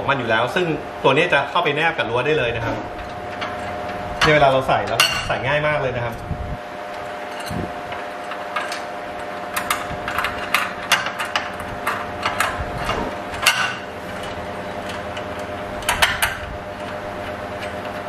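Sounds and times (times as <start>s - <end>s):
small metal clicks and knocks: 7.3s - 8.9s, 9.5s - 18.0s.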